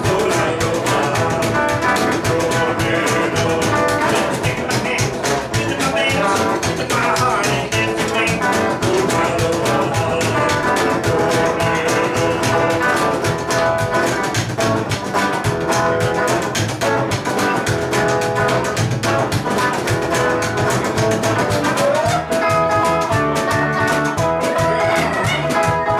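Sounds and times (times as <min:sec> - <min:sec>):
electric guitar through an amp: 0:00.0 - 0:25.9
fast drum beat: 0:00.0 - 0:25.9.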